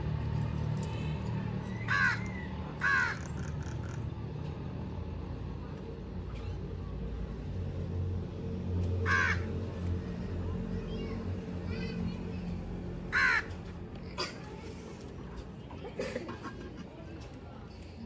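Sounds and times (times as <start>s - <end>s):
crow cawing: 1.8s - 4.0s, 9.0s - 9.5s, 13.1s - 13.5s.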